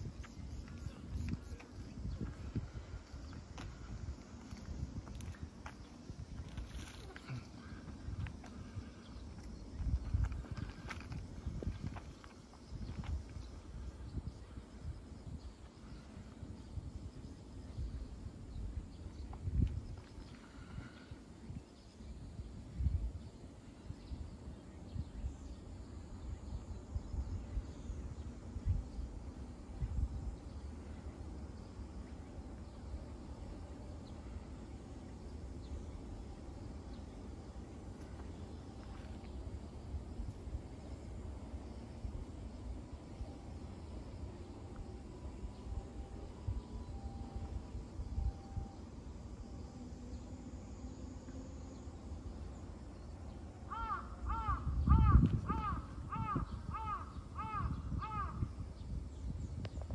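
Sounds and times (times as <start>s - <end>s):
steady low rumble: 0.0s - 59.9s
crow cawing: 53.7s - 58.4s.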